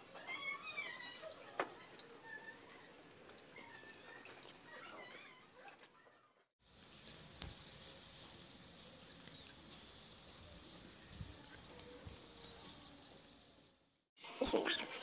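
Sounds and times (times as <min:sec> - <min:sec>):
faint chirping calls: 0:07.5 - 0:13.5.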